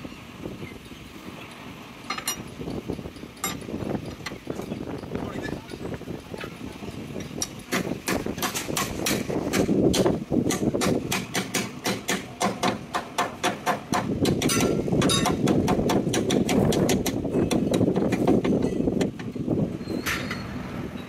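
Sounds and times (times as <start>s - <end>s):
hammer striking steel: 7.4s - 18.8s.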